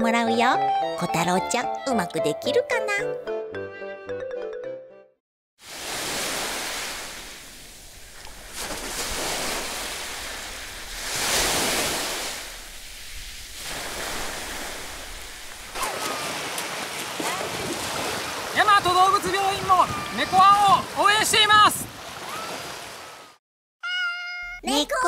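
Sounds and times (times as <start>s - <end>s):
bright music: 0.0s - 5.2s
sea waves washing on beach: 5.6s - 23.4s.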